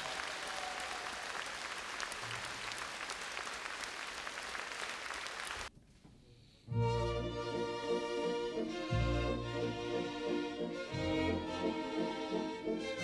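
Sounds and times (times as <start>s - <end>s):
audience applauding: 0.0s - 5.7s
orchestra with strings: 6.7s - 13.0s.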